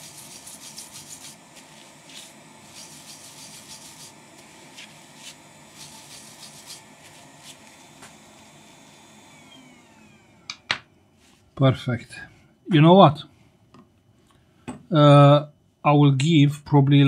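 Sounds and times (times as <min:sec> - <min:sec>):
tissue scrubbing circuit board: 0:00.0 - 0:07.8.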